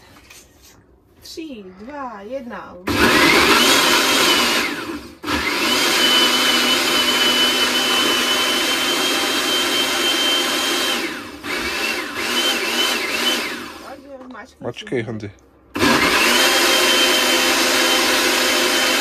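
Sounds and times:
electric blender whirring: 2.9 - 14.0, 15.7 - 19.0.

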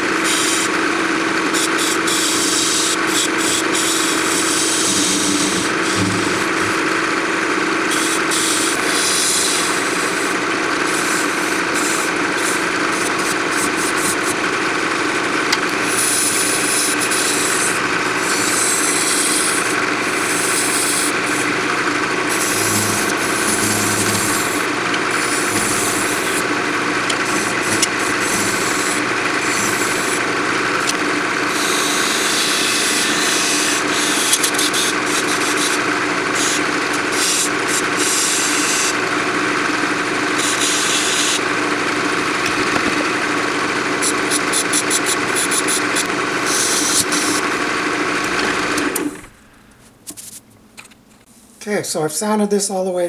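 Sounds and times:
lathe motor humming: 0.0 - 49.8
turning tool scraping wood: 1.5 - 7.1, 7.8 - 39.0, 40.4 - 41.4, 44.0 - 47.6.

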